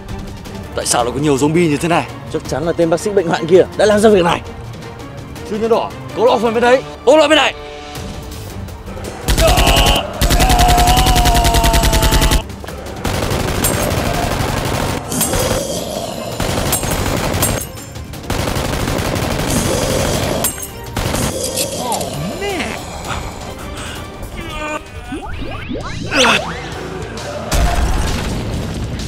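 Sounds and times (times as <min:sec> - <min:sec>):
rapid automatic gunfire: 0:09.3 - 0:12.4, 0:13.0 - 0:15.5, 0:16.4 - 0:20.4, 0:21.0 - 0:21.3.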